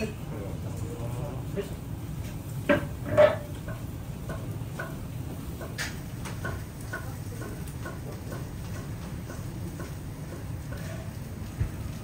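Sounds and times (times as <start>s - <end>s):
faint regular ticking: 3.6s - 10.8s.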